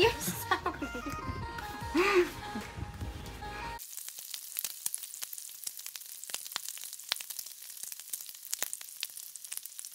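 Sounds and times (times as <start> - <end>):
bacon sizzling on griddle: 3.8 - 9.9
fat spattering crackles: 3.8 - 9.9.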